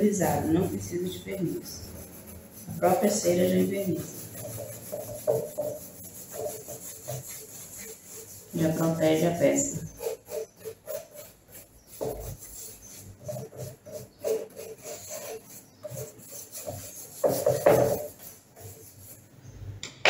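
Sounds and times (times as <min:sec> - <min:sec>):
brush scrubbing wooden board: 0:00.0 - 0:19.3.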